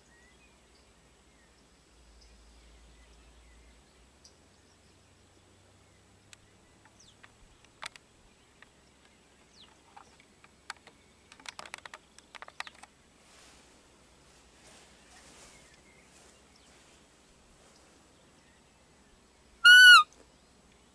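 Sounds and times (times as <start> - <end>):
sharp clicks and ticks: 6.8 - 8.0, 10.2 - 12.9
soft rustle: 6.8 - 19.2
falling bird chirps: 19.6 - 20.2.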